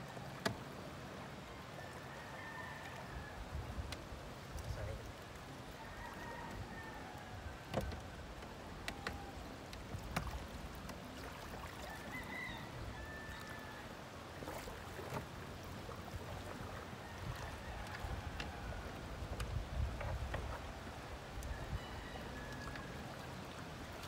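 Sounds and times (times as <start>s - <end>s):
water lapping against boat hull: 2.8s - 24.0s
clicks and knocks from outboard motor: 7.6s - 11.0s, 19.2s - 20.6s.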